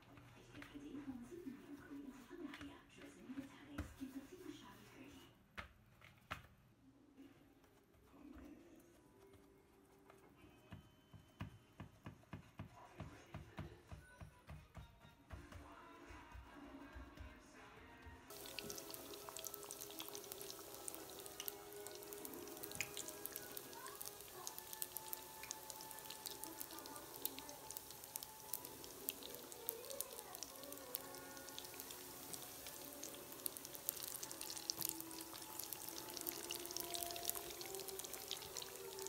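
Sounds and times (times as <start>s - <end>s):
soft background music: 6.6s - 39.0s
doughnuts frying in oil: 18.3s - 39.0s.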